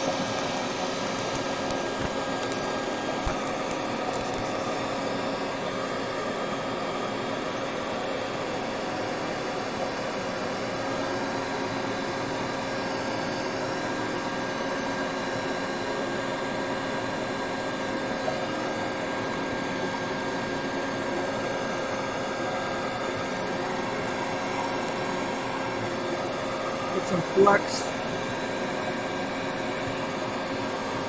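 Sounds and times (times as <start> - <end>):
fan rushing air: 0.0 - 31.0.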